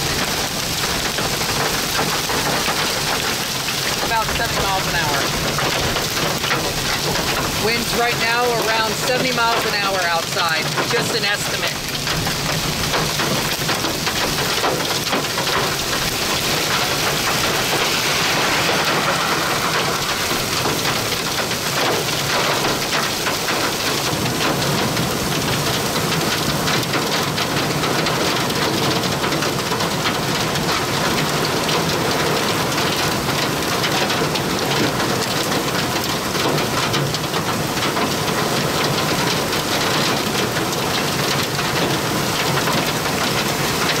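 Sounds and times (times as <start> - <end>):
heavy rain: 0.0 - 44.0
strong wind: 13.8 - 25.8.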